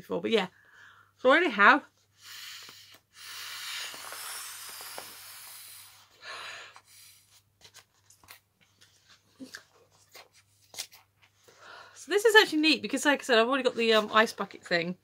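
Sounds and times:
blowing into inflatable valve: 2.2 - 6.2.

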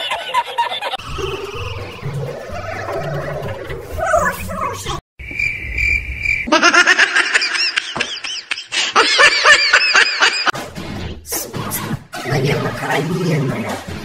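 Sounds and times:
high-pitched giggling: 6.5 - 10.3.

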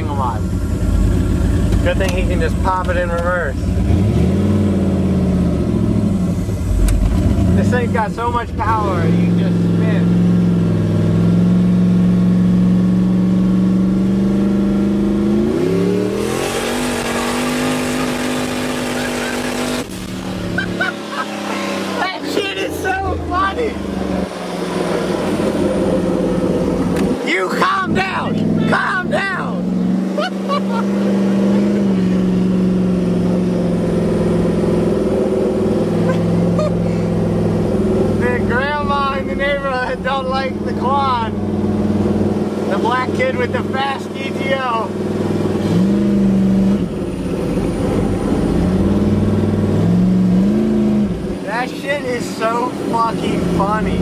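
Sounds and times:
car engine revving in cabin: 0.0 - 54.0.

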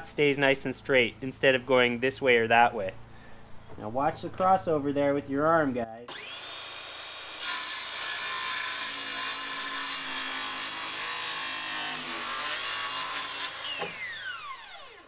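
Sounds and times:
circular saw cutting wood: 6.1 - 15.0.

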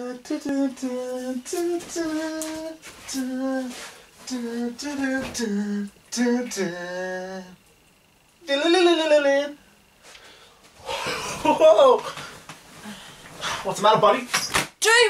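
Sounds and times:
person singing unaccompanied: 0.0 - 7.7, 8.4 - 9.6.

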